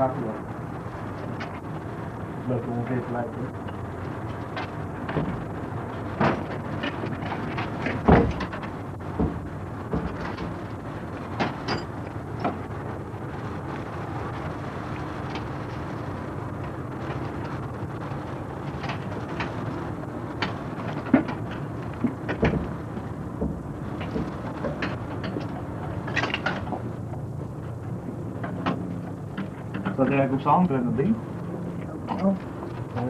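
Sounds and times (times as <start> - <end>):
steady low hum: 0.0 - 33.0
metal knocks and clanks: 6.2 - 10.6, 20.4 - 26.9.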